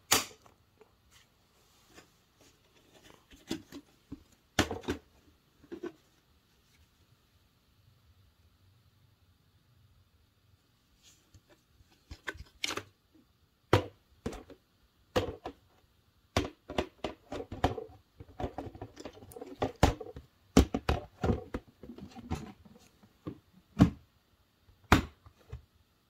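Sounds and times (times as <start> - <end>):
soft rustling: 1.0 - 4.3.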